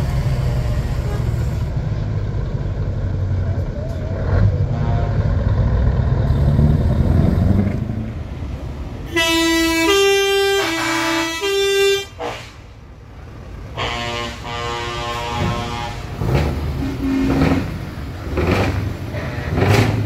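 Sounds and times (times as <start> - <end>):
diesel truck engine pulling away: 0.0 - 11.2, 12.2 - 20.0
truck air horn alternating notes: 0.4 - 1.8, 4.6 - 5.4, 9.0 - 12.8, 13.6 - 17.9, 19.1 - 20.0.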